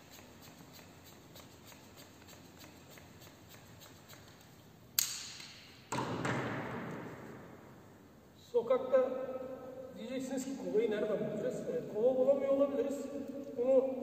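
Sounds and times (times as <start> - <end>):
air hissing from inner tube: 0.0 - 4.5.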